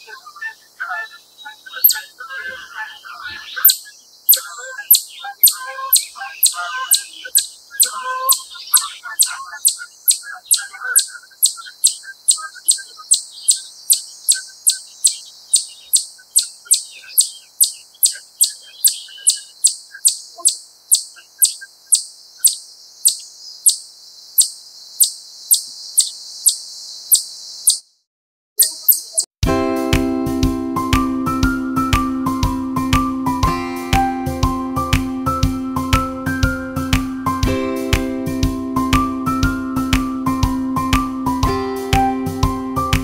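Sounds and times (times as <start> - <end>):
chipmunk chip calls: 0.0 - 27.9, 28.6 - 29.3.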